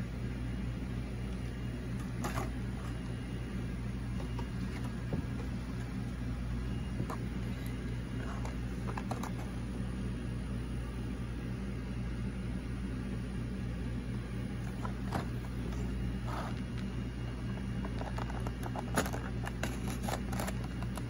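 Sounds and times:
steady low hum: 0.0 - 21.0
plastic blister pack crinkling: 17.5 - 21.0.

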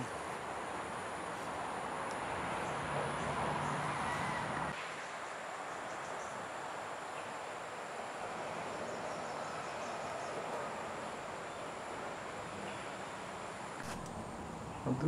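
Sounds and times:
insects droning: 0.0 - 15.0
background hiss: 4.6 - 15.0.

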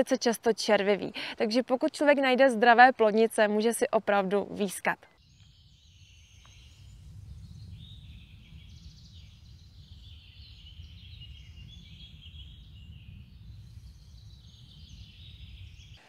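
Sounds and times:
birds chirping and singing: 5.2 - 16.0.

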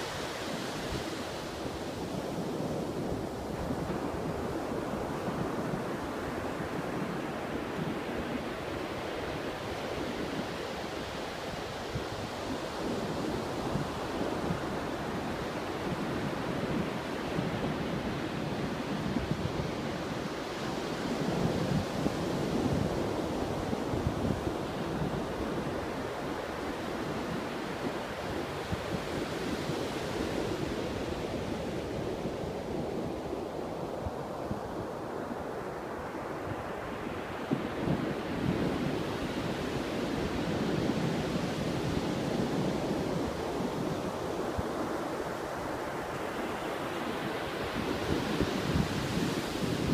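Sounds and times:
surf breaking on sandy beach: 35.9 - 49.9.

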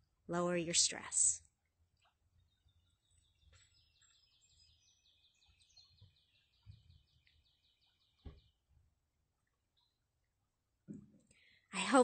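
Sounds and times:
songbird trill: 0.9 - 10.2.

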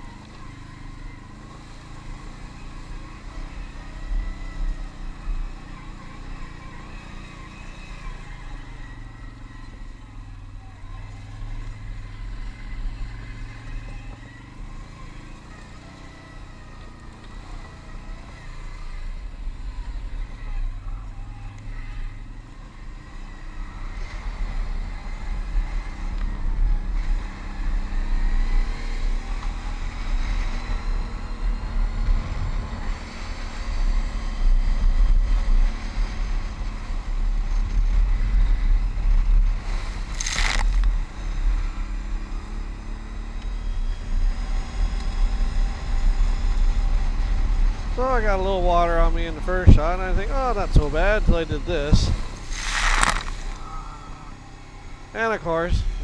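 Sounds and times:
atv engine running: 0.0 - 56.0
wind: 0.0 - 56.0
tyre noise: 39.0 - 41.2, 49.7 - 54.3.

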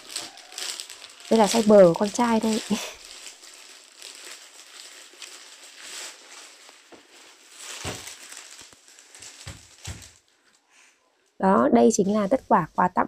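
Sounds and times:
t-shirt rustling: 0.0 - 10.4.

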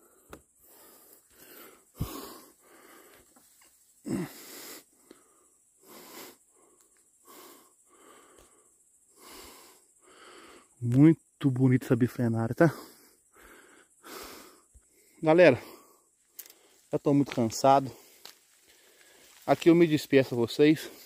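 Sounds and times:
man breathing hard: 0.0 - 10.8, 12.7 - 16.9, 17.9 - 19.4.

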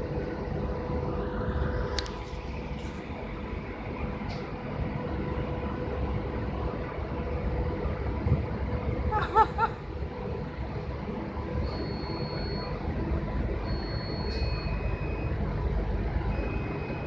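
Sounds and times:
wind rumble on microphone: 0.0 - 9.2
steady mechanical hum: 0.0 - 17.0.

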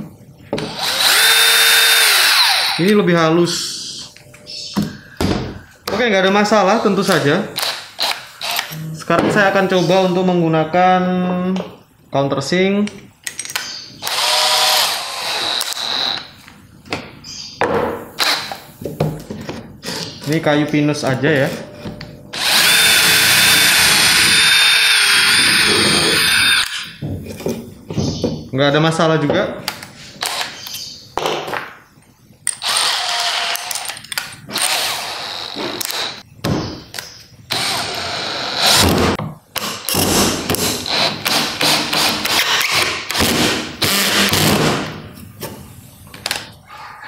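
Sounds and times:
cordless drill driving screw into wood: 0.6 - 2.8, 14.0 - 16.3, 18.2 - 18.6, 22.4 - 26.9, 32.6 - 33.9, 34.5 - 36.2, 37.5 - 44.7
cordless drill spinning up: 0.7 - 2.8, 14.0 - 16.2, 22.4 - 26.8, 32.6 - 33.7.

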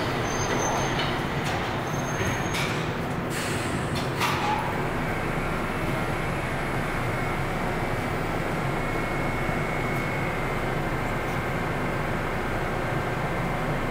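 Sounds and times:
subway train rumbling: 0.0 - 13.9.

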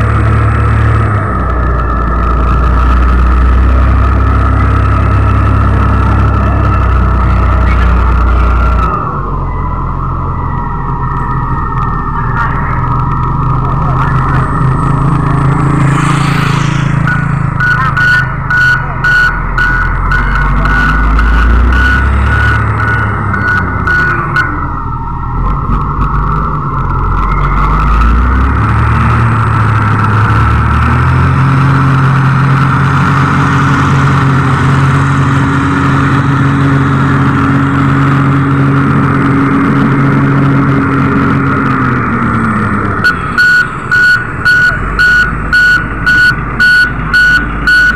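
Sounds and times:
diesel engine running under load: 0.0 - 47.9
reversing alarm beeps: 4.4 - 28.5, 43.0 - 47.9.

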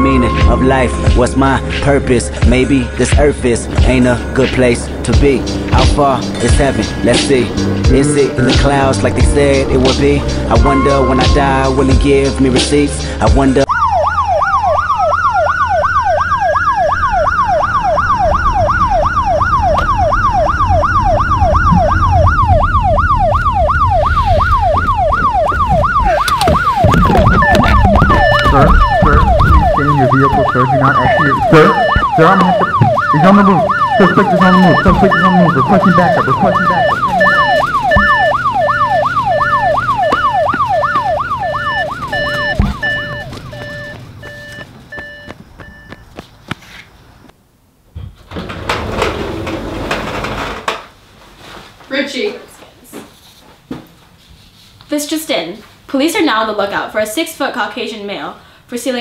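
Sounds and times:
moving car rumble: 0.0 - 47.3
police siren yelp: 13.6 - 45.3
slower siren wail: 13.6 - 46.0.

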